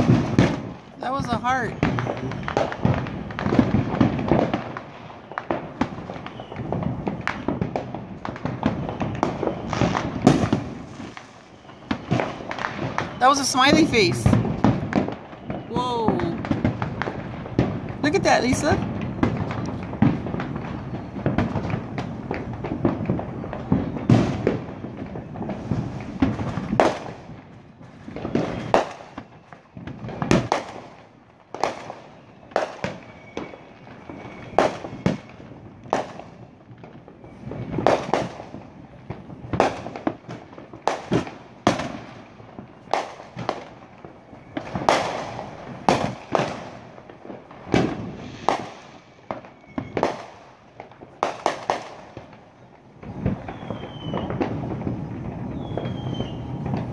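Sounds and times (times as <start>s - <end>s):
fireworks shells bursting: 47.6s - 50.5s.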